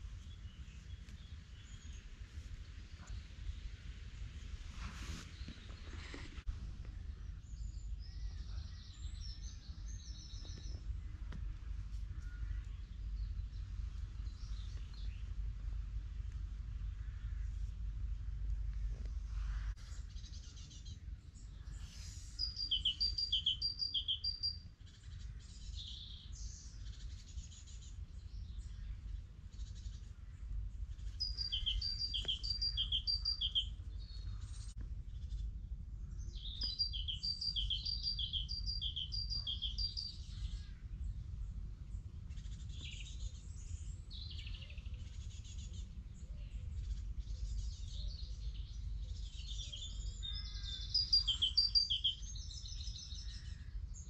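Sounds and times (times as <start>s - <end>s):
songbird singing two-note phrases: 22.4s - 24.6s, 31.2s - 34.3s, 36.3s - 40.6s, 49.2s - 53.4s.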